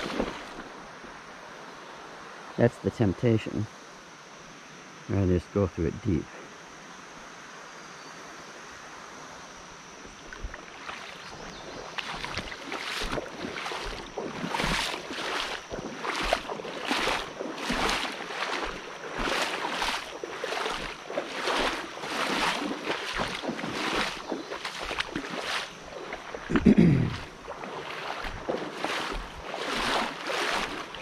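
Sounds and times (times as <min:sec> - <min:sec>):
person wading through water: 0:00.0 - 0:01.0, 0:10.1 - 0:31.0.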